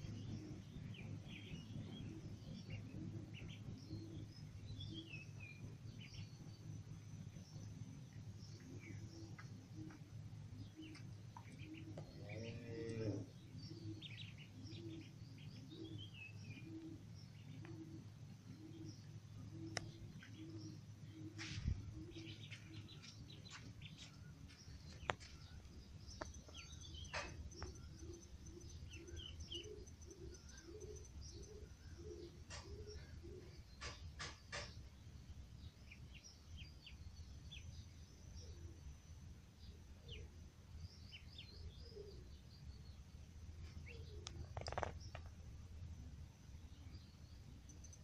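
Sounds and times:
steady low hum: 0.0s - 48.0s
ducklings peeping: 0.2s - 6.5s, 10.7s - 34.6s.

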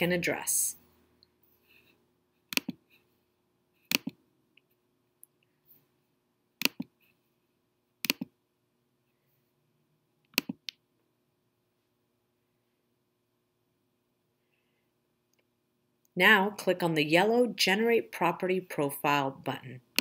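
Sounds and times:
computer mouse button clicks: 2.5s - 2.8s.

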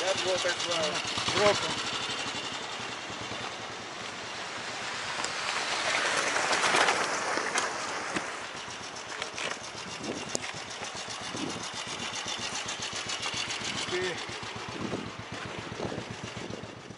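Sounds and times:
motorcycle engine beat: 0.0s - 5.8s, 7.7s - 16.9s
stones crunching under tyres: 4.9s - 13.5s
wind on microphone: 9.8s - 10.5s, 11.2s - 12.2s, 14.6s - 16.9s.

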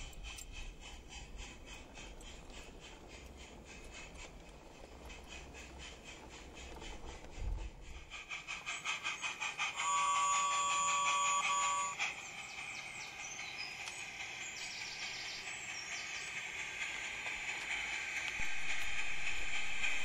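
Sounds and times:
steady steam hiss: 0.0s - 20.0s
steam locomotive chuffing: 0.0s - 20.0s
steam whistle: 9.7s - 12.0s.

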